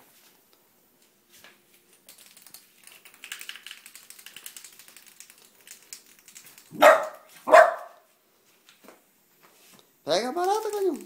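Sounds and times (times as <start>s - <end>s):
dog claws clicking on tiles: 1.9s - 7.5s, 10.4s - 11.0s.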